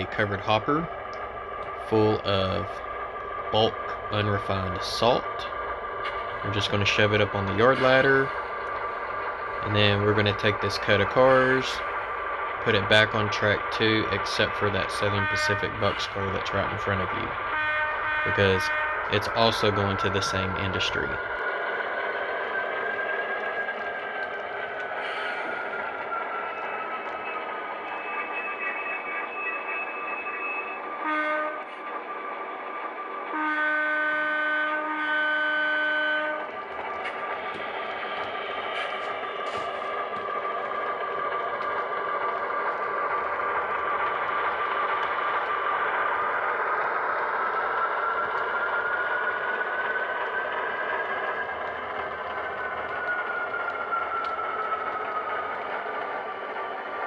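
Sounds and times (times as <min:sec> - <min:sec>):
wheels rolling on rail: 0:00.0 - 0:34.8, 0:35.4 - 0:57.0
model locomotive whine: 0:00.0 - 0:57.0
model locomotive horn blasts: 0:17.5 - 0:19.1, 0:31.0 - 0:31.7, 0:33.3 - 0:36.5.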